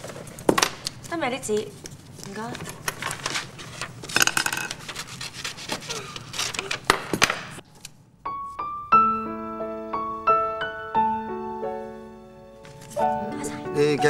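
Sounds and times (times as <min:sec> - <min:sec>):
paper rustling: 0:00.0 - 0:08.0, 0:12.6 - 0:13.1
scissors snipping paper: 0:04.7 - 0:07.1
keyboard melody with held notes: 0:08.3 - 0:14.0.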